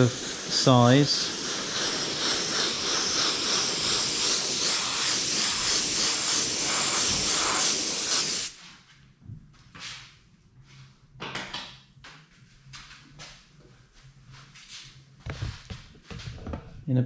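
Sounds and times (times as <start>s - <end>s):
airbrush hissing: 0.0s - 8.6s.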